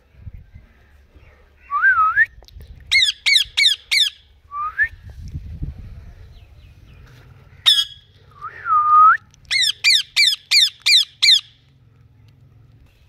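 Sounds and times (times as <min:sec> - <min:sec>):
parakeets squawking: 0:02.9 - 0:04.2, 0:07.6 - 0:08.1, 0:09.5 - 0:11.6.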